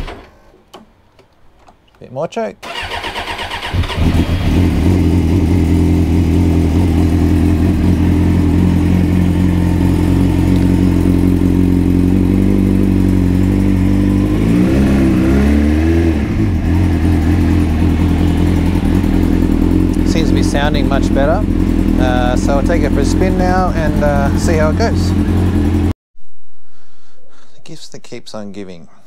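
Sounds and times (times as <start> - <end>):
motorcycle engine revving: 2.6 - 26.0
motorcycle engine fast idle: 2.7 - 13.1, 17.0 - 25.9.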